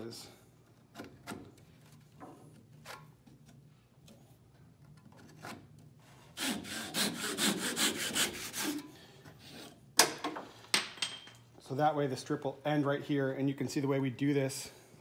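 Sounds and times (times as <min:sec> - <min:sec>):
saw cutting wood: 0:06.3 - 0:08.8.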